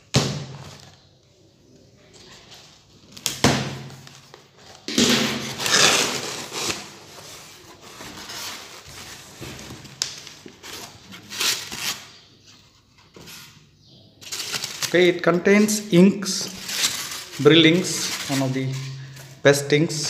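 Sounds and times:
foam packing rustling: 0:04.0 - 0:12.2, 0:14.2 - 0:15.0, 0:16.4 - 0:19.3.

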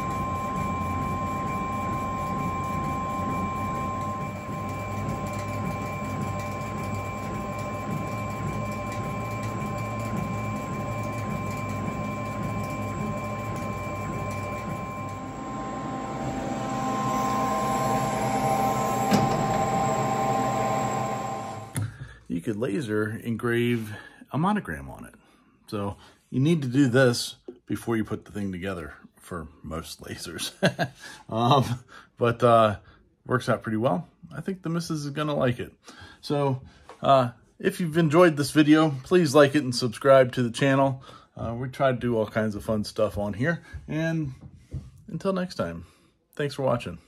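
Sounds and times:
laser engraver machine hum: 0:00.0 - 0:21.8
high whining motors and fans: 0:00.0 - 0:21.9.

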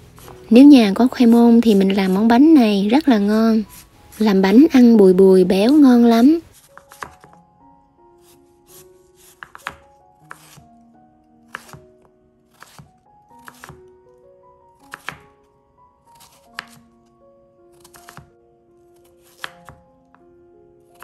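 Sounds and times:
soft background music: 0:00.0 - 0:21.0
knife chopping on cutting board: 0:00.2 - 0:00.4, 0:06.5 - 0:07.4, 0:08.2 - 0:10.6, 0:11.5 - 0:13.8, 0:14.8 - 0:15.3, 0:16.2 - 0:16.8, 0:17.8 - 0:18.3, 0:19.0 - 0:19.8.

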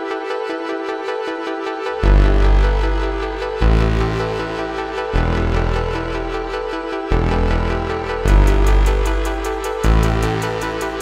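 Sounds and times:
electronic music with steady beat: 0:00.0 - 0:11.0.

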